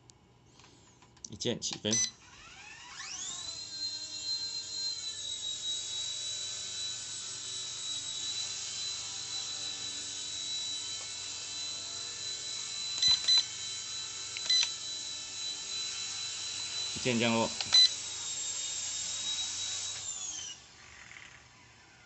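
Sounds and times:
short beeps: 0:01.9 - 0:02.2
toy helicopter rotors whining: 0:02.2 - 0:22.0.

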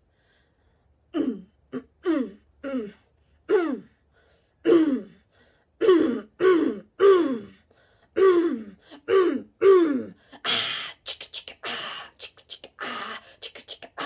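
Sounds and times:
woman's wordless vocal sounds: 0:10.6 - 0:14.0.

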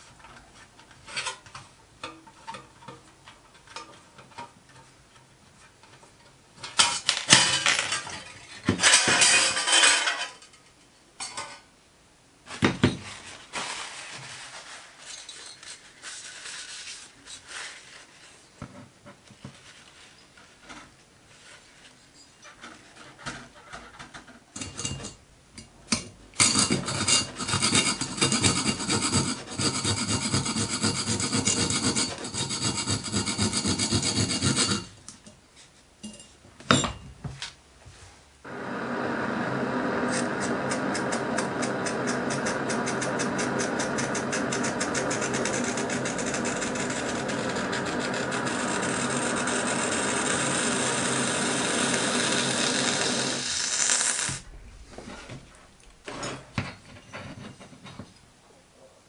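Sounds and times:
rhythmic scraping against metal: 0:42.3 - 0:52.3.

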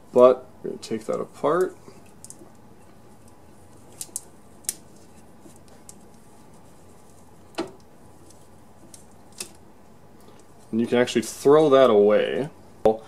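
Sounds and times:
insulation tape crackling as peeled: 0:00.8 - 0:09.6.

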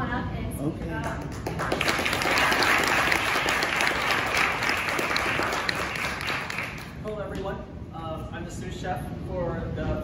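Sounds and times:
audience applauding: 0:01.1 - 0:07.0.

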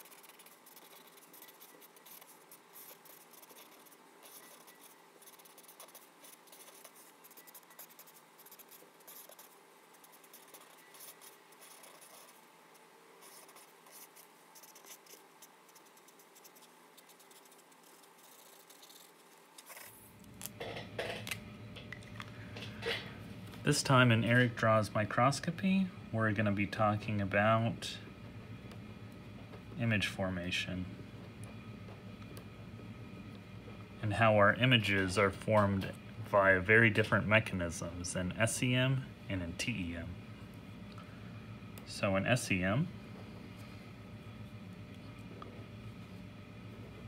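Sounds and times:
marker scratching on paper: 0:00.0 - 0:12.4, 0:13.2 - 0:20.0.

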